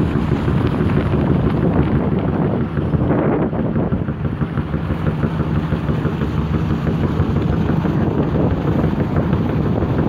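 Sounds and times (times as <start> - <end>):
ship engines humming: 0.0 - 10.0
wind noise on microphone: 0.0 - 10.0.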